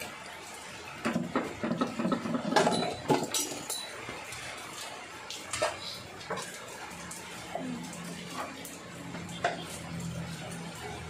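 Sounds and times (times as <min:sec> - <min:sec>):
metal parts and tools clinking: 0:02.0 - 0:04.1.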